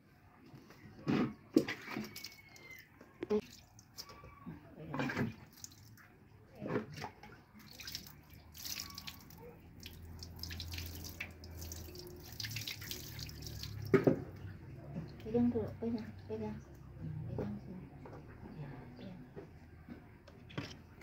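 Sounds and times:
water splashing and dripping: 1.7s - 4.2s, 5.2s - 6.2s, 6.8s - 16.3s.

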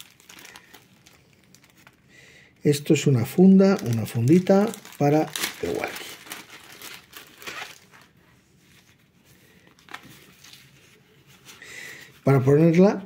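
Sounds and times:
plastic bag crinkling: 0.0s - 2.1s, 3.2s - 11.0s.

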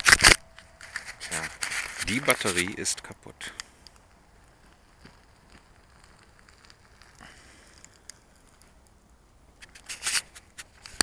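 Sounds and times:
handling rustle near microphone: 0.0s - 2.9s.

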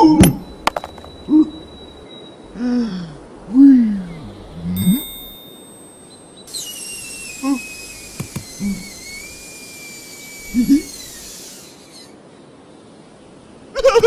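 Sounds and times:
air whistling out of tyre: 6.5s - 12.2s.

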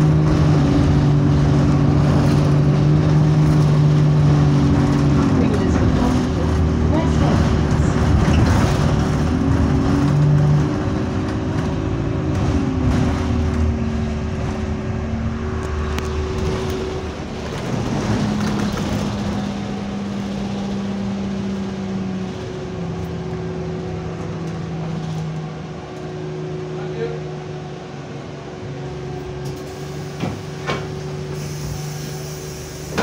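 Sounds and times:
bus engine drone: 0.0s - 33.0s
road rumble: 0.0s - 33.0s.

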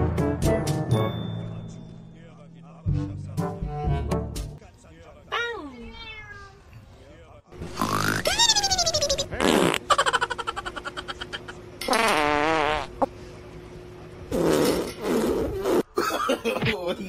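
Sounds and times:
fart sounds: 7.6s - 10.0s, 11.9s - 13.1s, 14.3s - 15.9s.

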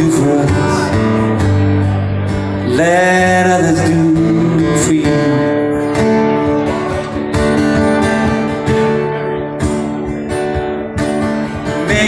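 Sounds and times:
acoustic guitars strumming chords: 0.0s - 12.0s.

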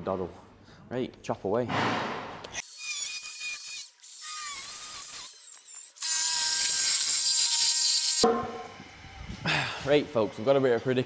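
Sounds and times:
power tool cutting metal pipe: 2.6s - 9.2s.

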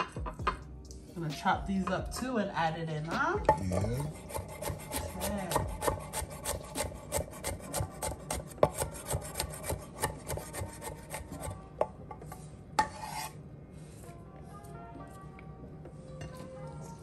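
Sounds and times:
faint background music: 0.0s - 17.0s
knife chopping on wooden board: 3.5s - 11.5s
knife blade scraping: 3.9s - 11.5s, 12.8s - 13.4s.

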